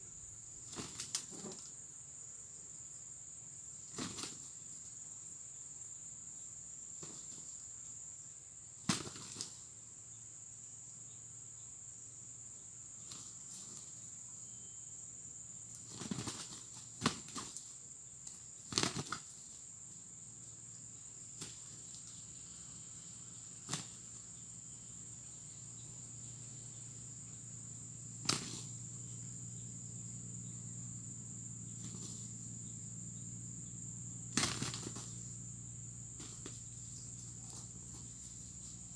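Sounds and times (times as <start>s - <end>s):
insects droning: 0.0s - 38.9s
roosters flapping and scuffling: 0.6s - 1.8s, 3.8s - 4.9s, 7.0s - 7.6s, 8.8s - 9.7s, 13.0s - 14.1s, 15.7s - 19.7s, 21.2s - 22.4s, 23.2s - 24.3s, 28.2s - 28.9s, 31.7s - 32.6s, 34.3s - 35.5s, 36.1s - 38.9s.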